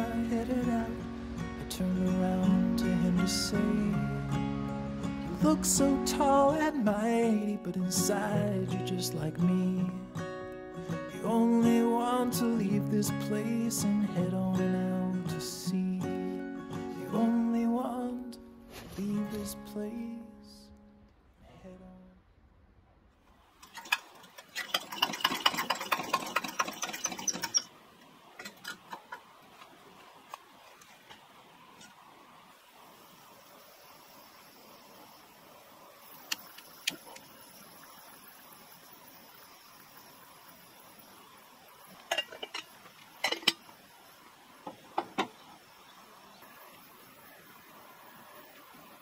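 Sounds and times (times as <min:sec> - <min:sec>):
squeaky clicking pump strokes: 0:23.6 - 0:27.7
kettle clinking on metal grate: 0:42.0 - 0:43.6.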